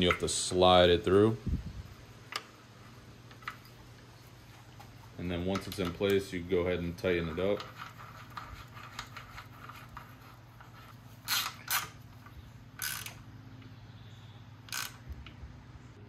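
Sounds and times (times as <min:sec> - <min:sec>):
hand ratchet clicking: 0:11.2 - 0:13.2, 0:14.7 - 0:15.4.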